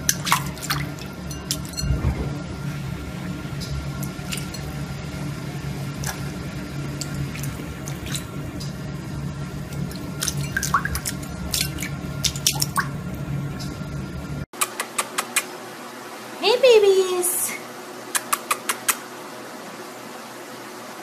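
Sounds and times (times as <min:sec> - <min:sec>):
water splashing and dripping: 0:00.0 - 0:02.6, 0:03.5 - 0:05.0, 0:05.8 - 0:13.8
steady low hum: 0:00.0 - 0:14.5.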